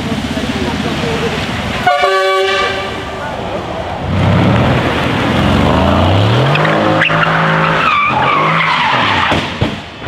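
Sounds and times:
car engine revving hard: 4.1 - 9.2
tyres squealing: 6.3 - 9.5
car hitting a tree: 9.1 - 10.0.

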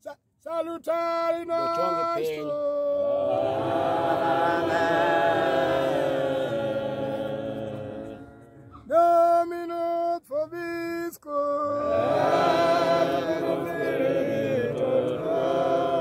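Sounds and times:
congregation chanting a hymn: 1.7 - 9.0, 11.7 - 16.0
single voice holding long notes: 2.3 - 9.0.

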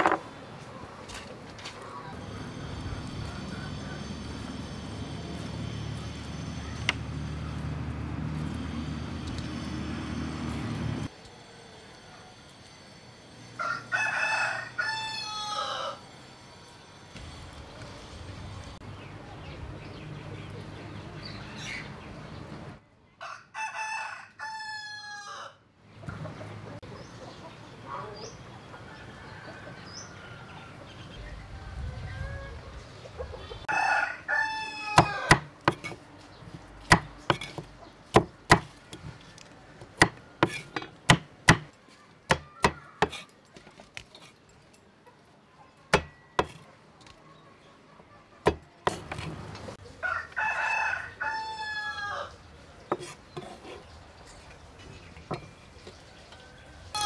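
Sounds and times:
rooster crowing: 13.6 - 16.1, 23.2 - 25.7, 33.7 - 35.5, 50.0 - 52.4
knife chopping on wooden board: 35.0 - 36.0, 36.9 - 39.0, 39.8 - 41.7, 42.3 - 43.3, 45.9 - 46.6, 48.5 - 49.3, 52.9 - 53.6.

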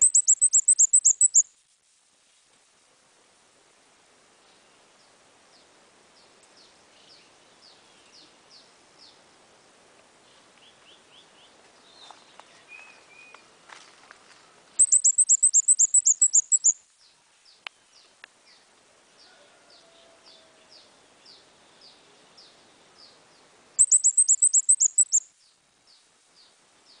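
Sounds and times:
high bird chips: 0.0 - 1.5, 14.8 - 16.8, 23.8 - 25.2
songbird trills: 0.0 - 1.5, 14.8 - 18.7, 23.8 - 27.0.

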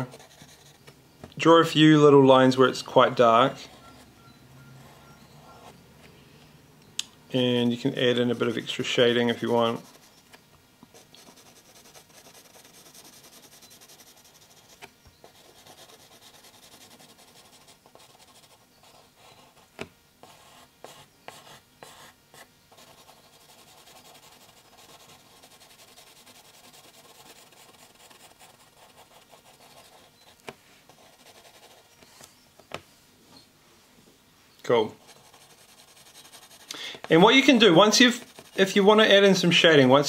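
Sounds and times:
pencil scratching on paper: 0.0 - 0.8, 9.4 - 10.2, 10.9 - 30.2, 30.9 - 31.9, 35.0 - 36.7, 37.4 - 39.0.

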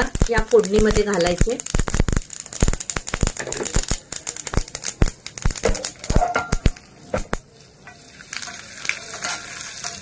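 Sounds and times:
seeds popping in hot oil: 0.0 - 10.0
spoon stirring seeds: 7.9 - 10.0.

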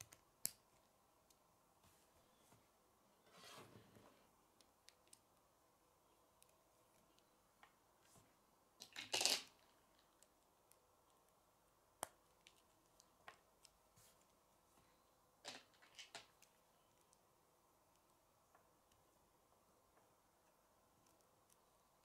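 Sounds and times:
plastic pieces clattering: 8.8 - 9.6
plastic pieces clicking together: 8.8 - 9.6.

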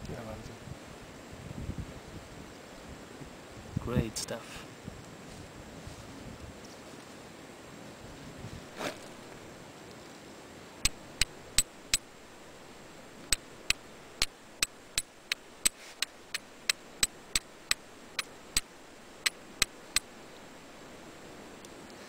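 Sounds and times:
steel striker clicking on flint: 10.8 - 12.2, 13.2 - 20.2.

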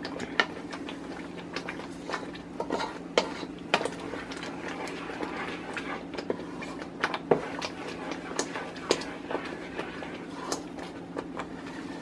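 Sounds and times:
wooden spoon stirring in pot: 0.0 - 12.0
bubbling paste popping: 3.6 - 11.6.

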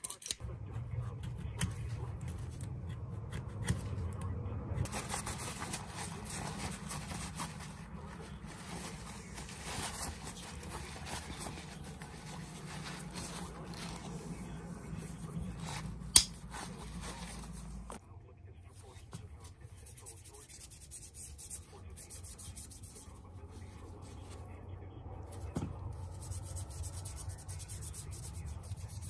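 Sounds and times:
steady low hum: 0.4 - 29.0.

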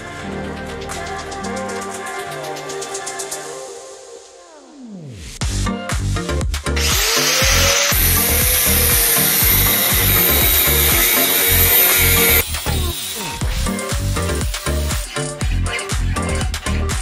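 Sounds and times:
electronic music with beat: 0.0 - 17.0
angle grinder grinding steel: 6.8 - 16.9.

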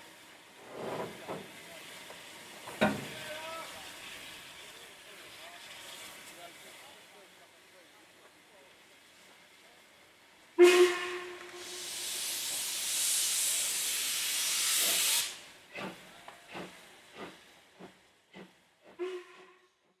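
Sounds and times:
steam hissing: 0.0 - 19.2
steam whistle toot: 10.6 - 12.2, 19.0 - 19.7
steam locomotive chuffing beats: 10.7 - 19.6.

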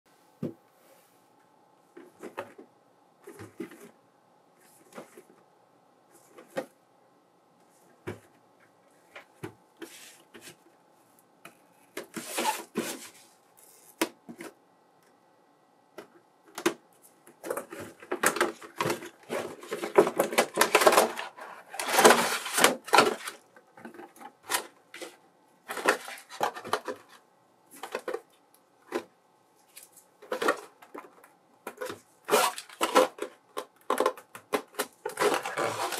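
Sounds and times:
plastic crinkling: 29.6 - 35.9.

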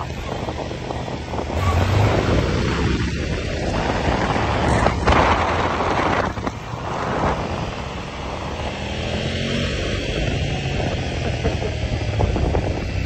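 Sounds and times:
motorcycle engines running: 0.0 - 13.0
wind rush on microphone: 0.0 - 13.0.

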